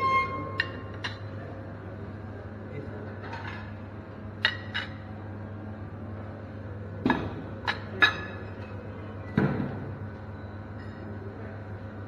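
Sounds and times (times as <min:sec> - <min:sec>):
steady low hum: 0:00.0 - 0:12.0
dishes and utensils clinking: 0:03.2 - 0:03.8, 0:07.1 - 0:08.8.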